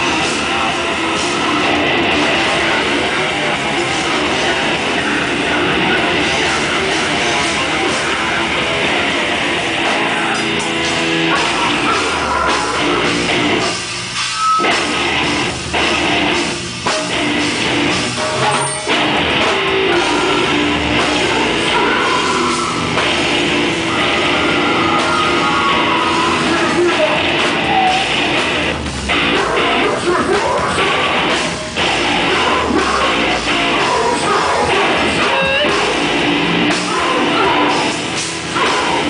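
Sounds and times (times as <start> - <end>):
distorted electric guitars: 0.0 - 39.0
drum kit: 0.0 - 39.0
person singing into microphone: 19.4 - 28.0, 29.3 - 36.1.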